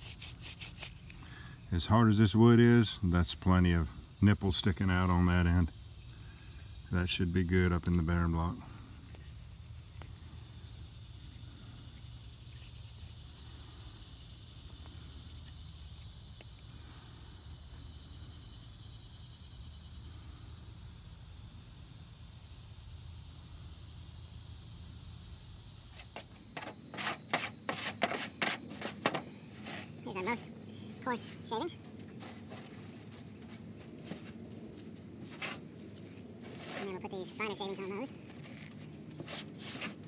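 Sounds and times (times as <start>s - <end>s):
insects chirring: 0.0s - 40.0s
wood shavings rustling: 26.0s - 40.0s.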